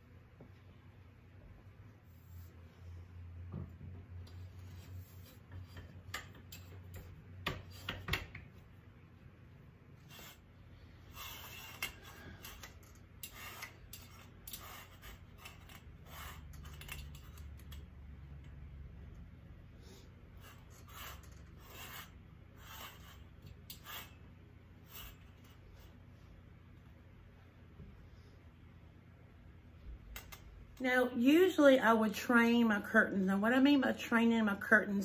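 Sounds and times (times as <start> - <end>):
metal grommets scraping on rod: 10.0 - 17.8, 20.3 - 26.0.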